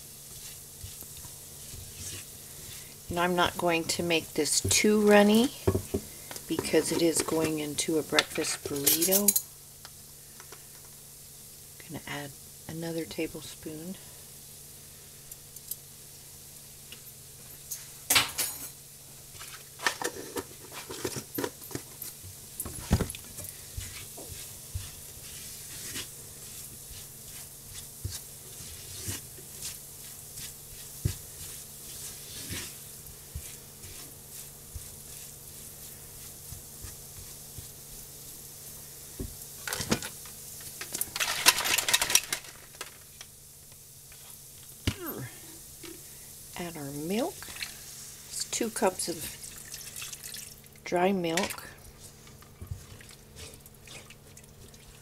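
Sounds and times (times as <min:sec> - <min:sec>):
low sizzle: 0:00.0 - 0:55.0
rattling in a pan: 0:40.8 - 0:43.0.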